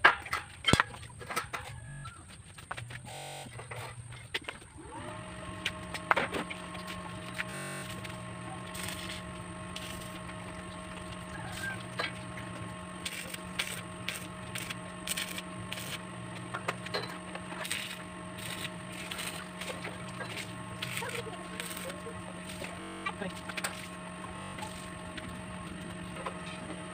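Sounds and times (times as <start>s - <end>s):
steady low hum: 0.2s - 26.9s.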